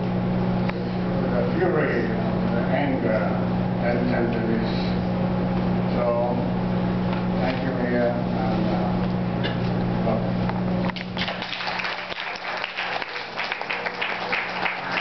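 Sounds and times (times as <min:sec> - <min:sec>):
steady low hum: 0:00.0 - 0:15.0
audience applause: 0:11.2 - 0:15.0.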